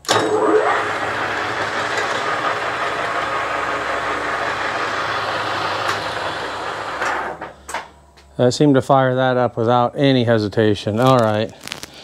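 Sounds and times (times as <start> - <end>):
lathe motor whining: 0.0 - 7.6.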